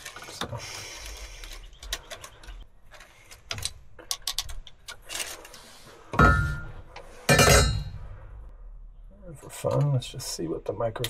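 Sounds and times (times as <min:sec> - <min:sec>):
loud metal clatter with ring: 0:06.2 - 0:08.0.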